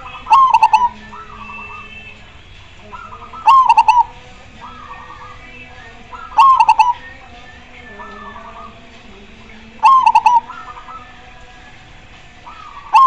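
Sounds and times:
dove cooing loudly: 0.0s - 8.9s, 9.5s - 11.8s, 12.4s - 13.0s
faint dove coos: 2.8s - 5.4s, 6.1s - 7.0s, 9.8s - 11.1s.

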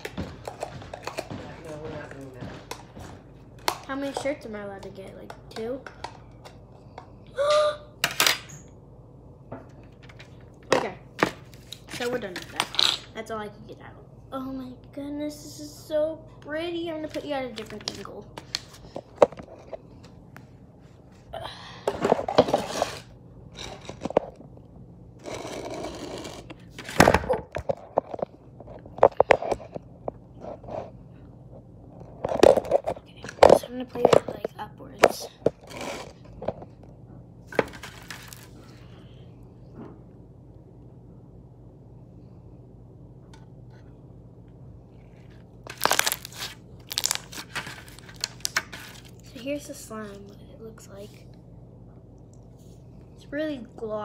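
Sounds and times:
phone scraping and rubbing: 22.1s - 24.3s, 25.2s - 26.9s, 35.6s - 36.2s
slime crackling and popping: 45.7s - 48.7s.

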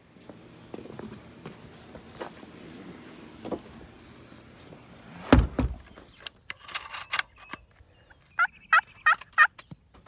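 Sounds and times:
turkey call yelps: 8.4s - 9.5s.

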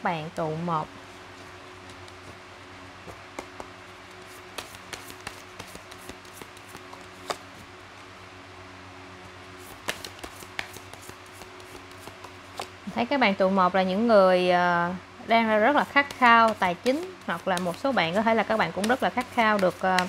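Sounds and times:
faint steady hum: 0.0s - 20.0s
cards clicking and tapping: 3.4s - 7.4s, 9.6s - 12.7s, 15.8s - 20.0s.

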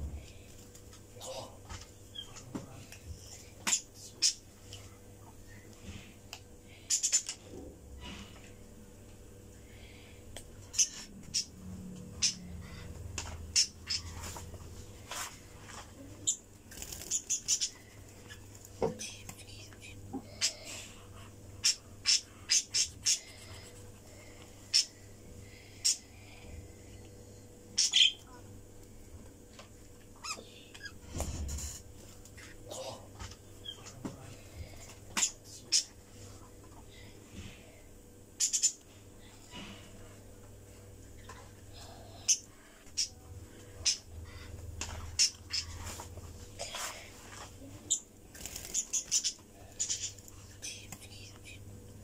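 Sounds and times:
low steady hum: 0.0s - 52.0s
budgerigars chirping: 12.2s - 12.4s, 13.5s - 14.2s, 17.1s - 17.8s, 21.6s - 23.2s, 27.8s - 28.2s, 38.4s - 38.8s, 48.7s - 50.1s.

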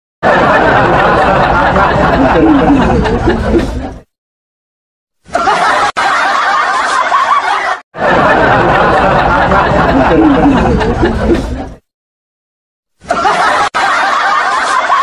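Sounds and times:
person chuckling: 2.0s - 4.0s, 9.6s - 11.8s.

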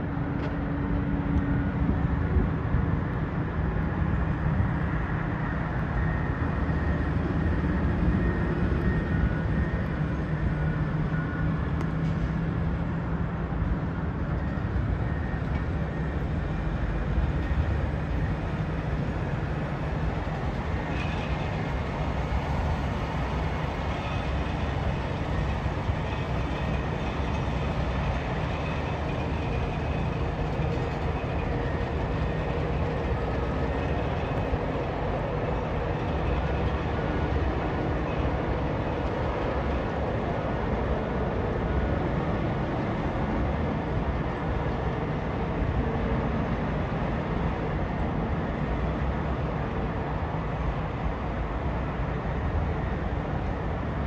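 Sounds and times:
distant heavy machinery rumble: 13.6s - 41.6s.

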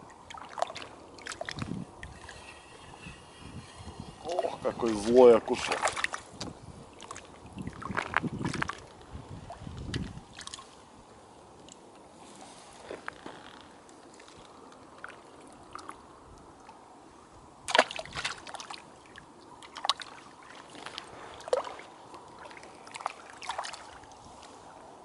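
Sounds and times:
lake waves lapping on concrete: 0.0s - 25.0s.

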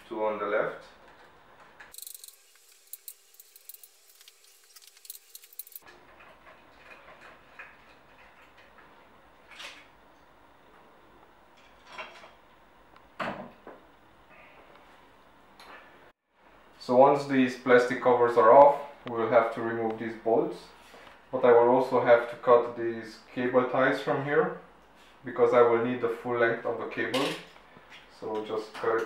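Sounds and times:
screwdriver clicking on screws: 1.9s - 5.8s.

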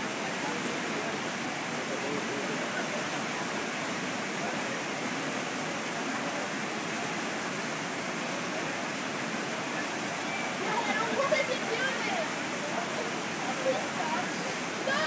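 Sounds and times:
river water rushing over boulders: 0.0s - 15.0s.

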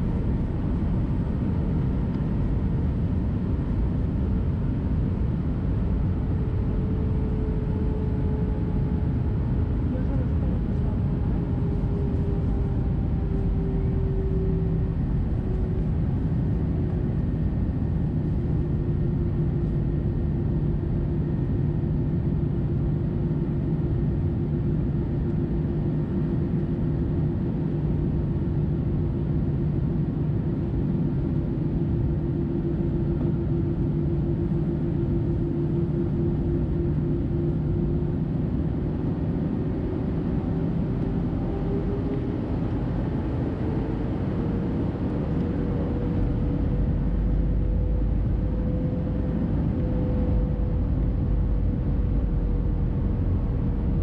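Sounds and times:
jet engines humming: 30.2s - 54.0s.

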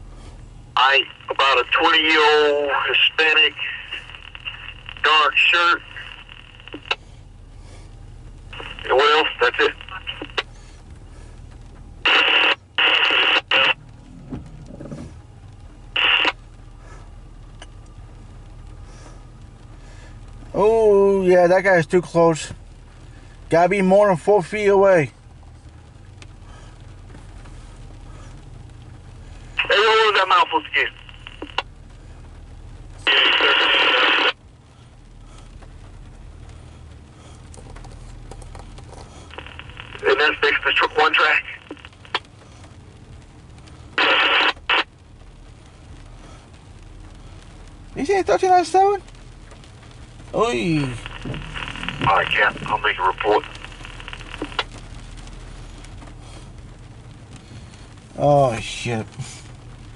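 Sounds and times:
low steady hum: 0.0s - 59.9s
scanner radio harsh transmissions: 0.8s - 7.0s, 8.5s - 10.5s, 12.0s - 13.8s, 15.9s - 16.4s, 29.6s - 31.6s, 33.0s - 34.4s, 39.2s - 42.3s, 43.9s - 44.9s, 50.3s - 54.7s
windshield wiper sweeping: 13.9s - 17.9s, 41.7s - 52.8s.

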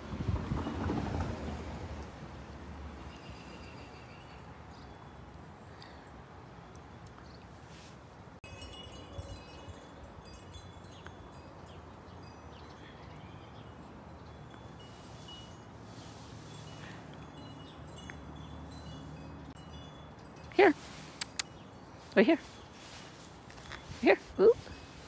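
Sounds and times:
high ringing chimes: 8.4s - 25.0s.

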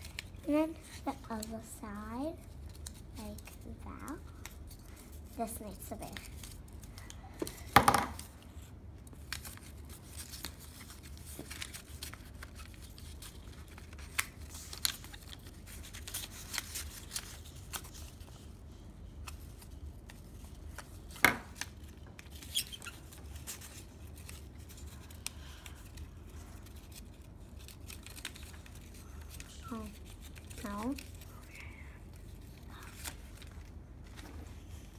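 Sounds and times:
paper rustling: 9.1s - 31.4s.

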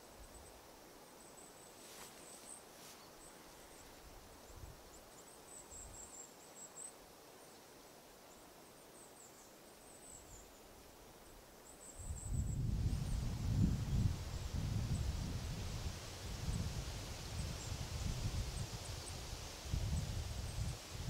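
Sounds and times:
faint high-pitched chirping: 0.0s - 15.6s.

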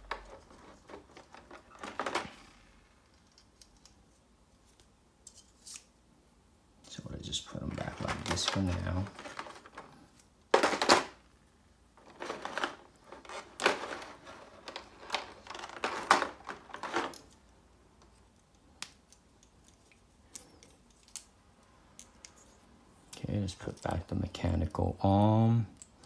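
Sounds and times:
plastic tray crinkling: 7.8s - 9.9s, 12.0s - 17.3s.

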